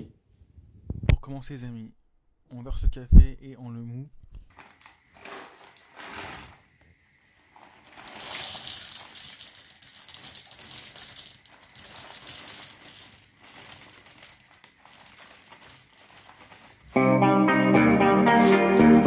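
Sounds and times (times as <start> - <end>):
coffee beans rattling into metal bowl: 4.5 - 6.7, 7.4 - 17.8.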